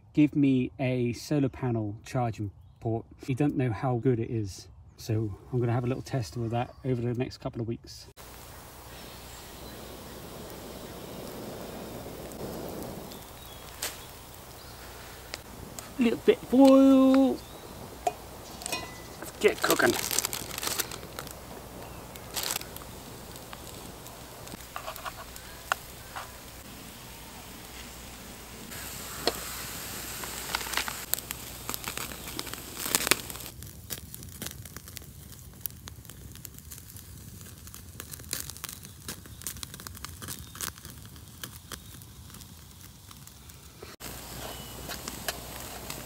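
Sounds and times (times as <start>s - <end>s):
campfire crackling and popping: 8.1s - 46.0s
oil sizzling in a pan: 8.2s - 33.6s, 41.4s - 46.0s.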